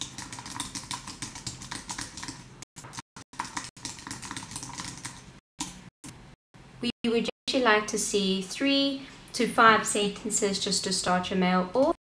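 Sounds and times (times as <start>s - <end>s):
fast typing on keyboard: 0.0s - 5.8s.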